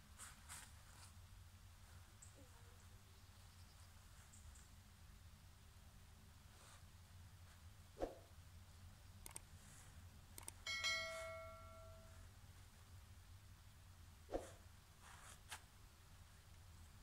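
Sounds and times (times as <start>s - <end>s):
sharp mouse clicks: 9.2s - 9.5s, 10.4s - 10.6s
bright bell chime: 10.6s - 12.3s.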